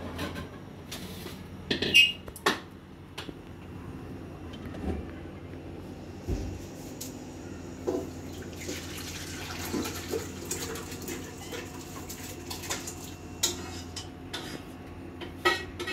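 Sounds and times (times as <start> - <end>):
steady low hum: 0.0 - 8.6.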